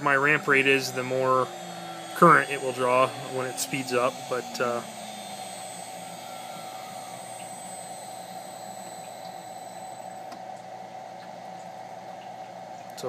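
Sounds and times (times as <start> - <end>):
router spindle spinning down: 0.0 - 10.7
high-pitched whine: 0.0 - 11.0.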